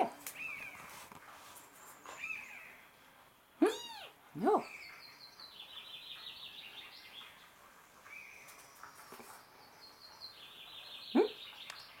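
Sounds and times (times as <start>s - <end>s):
kitten meowing: 3.7s - 4.1s.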